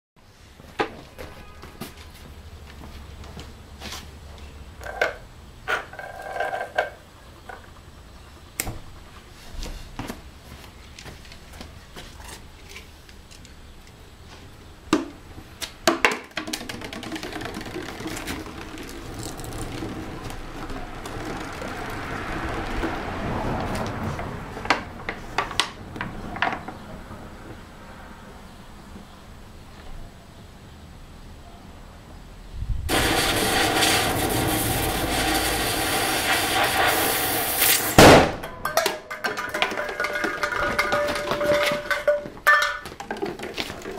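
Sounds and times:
fire rushing in a tin can: 16.9s - 23.8s, 32.9s - 38.4s.

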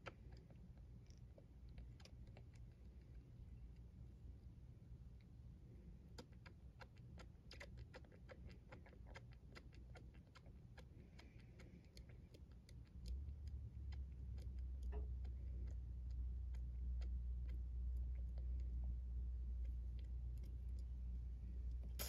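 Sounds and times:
kitten suckling with clicks: 0.0s - 4.0s, 6.0s - 22.0s
low hum: 12.8s - 22.0s.

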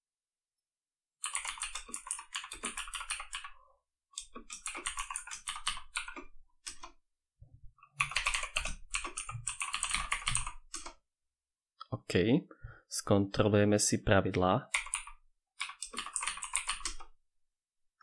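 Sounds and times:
fast typing on keyboard: 1.2s - 3.6s, 4.2s - 6.9s, 8.0s - 11.0s, 14.7s - 17.2s.

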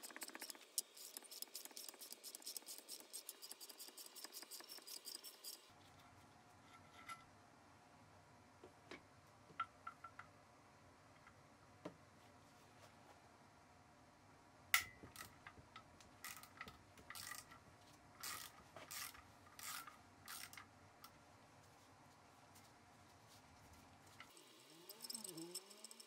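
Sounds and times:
ratchet clicking: 0.0s - 5.7s, 17.1s - 17.5s, 18.2s - 20.6s, 24.6s - 26.0s.

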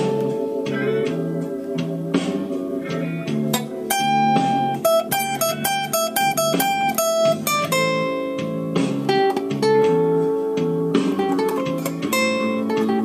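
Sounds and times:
acoustic guitar blues riff: 0.0s - 13.0s.

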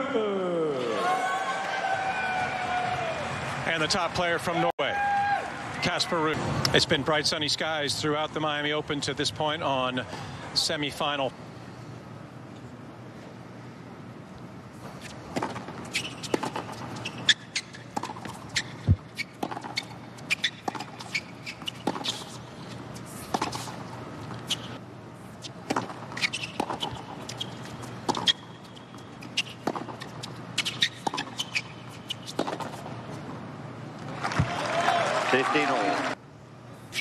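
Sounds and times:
stadium background: 0.0s - 17.2s, 31.6s - 37.0s
tennis ball bounces: 15.3s - 22.4s, 25.6s - 33.3s.

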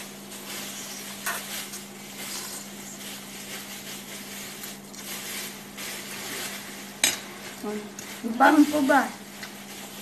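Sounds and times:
spaghetti slurping and chewing: 0.4s - 6.8s.

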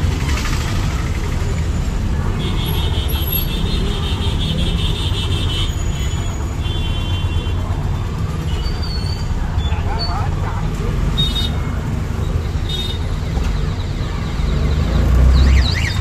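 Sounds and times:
vehicle engine rumbling: 0.0s - 16.0s.

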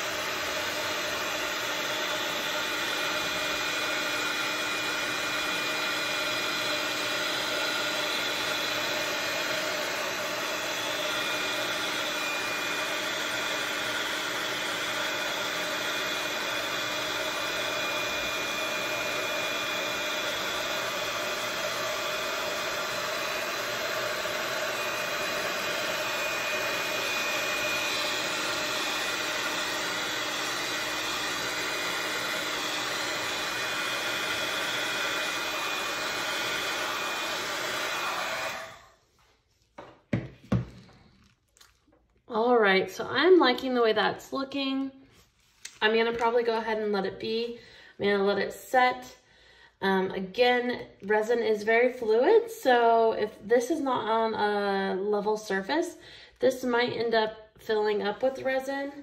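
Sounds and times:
heat gun blowing air: 0.0s - 39.0s.

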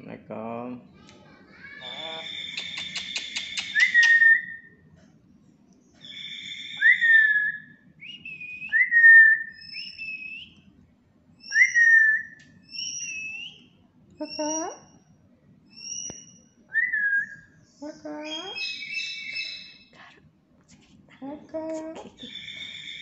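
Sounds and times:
parrot whistling: 1.8s - 4.7s, 6.0s - 10.6s, 11.5s - 13.7s, 15.8s - 17.5s, 18.3s - 19.8s, 22.3s - 23.0s.

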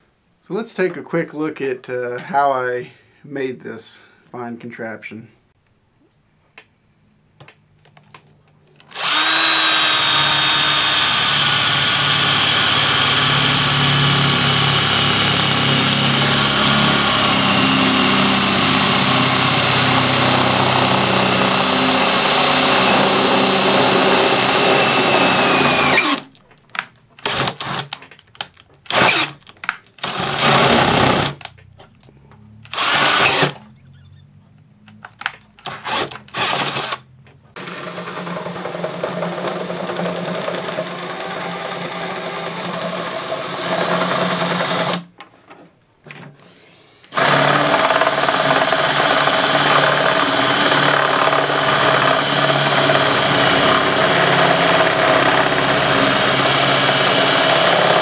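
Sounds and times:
electric drill boring through metal: 8.8s - 26.3s, 27.2s - 28.0s, 28.9s - 29.4s, 30.0s - 31.5s, 32.7s - 33.6s, 35.6s - 37.0s, 37.6s - 45.0s, 46.5s - 58.0s.

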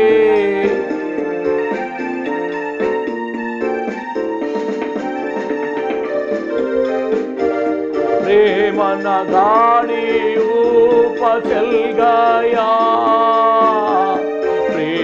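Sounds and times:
man singing long bending notes: 0.0s - 1.0s, 8.2s - 15.0s
electronic keyboard chords and melody: 0.0s - 15.0s.

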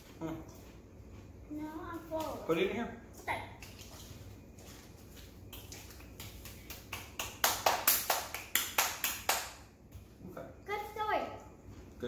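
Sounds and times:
child clapping hands: 5.5s - 9.6s.

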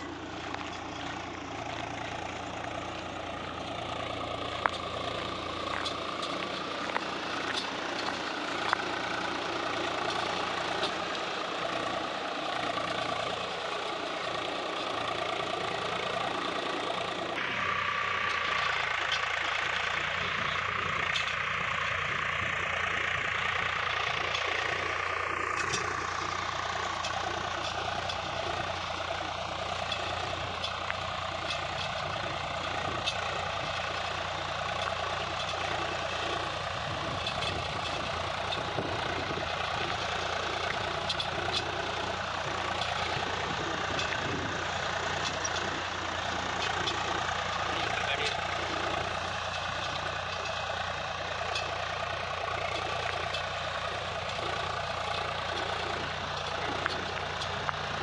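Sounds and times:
tractor diesel engine under load: 0.0s - 58.0s.

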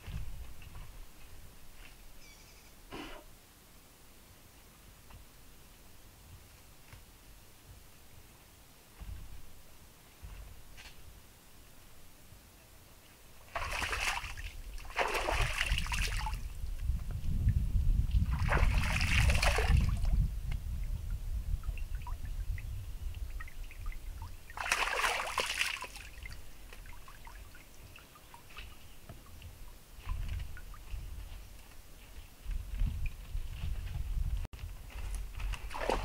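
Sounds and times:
water splashing and trickling: 13.5s - 17.6s, 18.2s - 31.3s, 35.4s - 36.0s.

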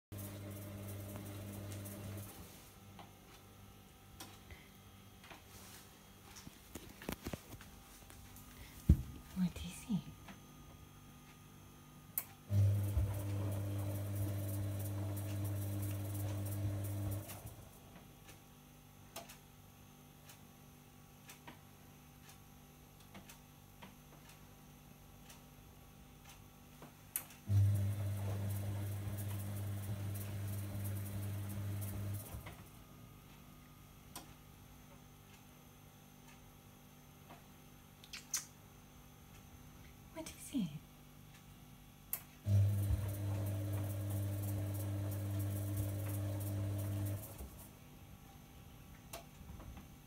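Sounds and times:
washing machine humming: 0.0s - 7.2s, 12.4s - 18.2s, 27.4s - 33.6s, 42.4s - 48.0s.

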